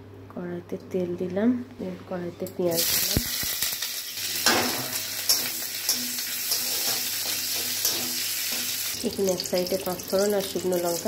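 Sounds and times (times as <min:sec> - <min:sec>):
onion sizzling in hot oil: 0:02.7 - 0:11.0
spatula clicking and scraping: 0:05.2 - 0:08.8.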